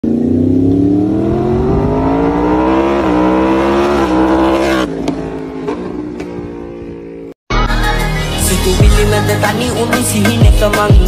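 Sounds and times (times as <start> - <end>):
motorcycle engine accelerating: 0.0 - 7.4.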